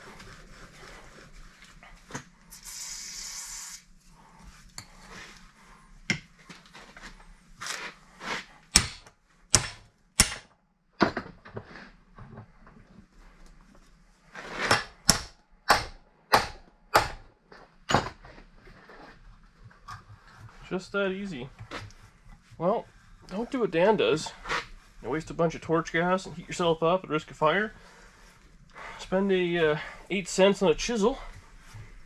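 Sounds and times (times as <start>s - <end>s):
aerosol can hiss: 2.5s - 3.9s
hammer striking a chisel: 8.7s - 10.5s, 14.7s - 17.2s.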